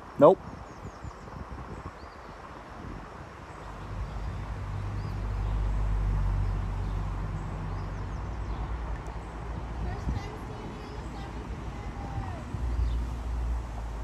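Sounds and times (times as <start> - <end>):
passing vehicle engine hum: 3.6 - 14.0.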